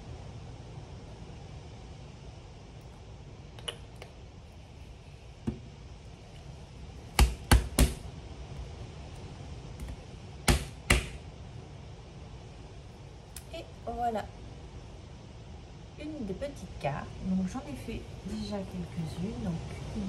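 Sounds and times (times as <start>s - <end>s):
loud knocks on a table: 7.2s - 8.0s, 9.8s - 11.2s.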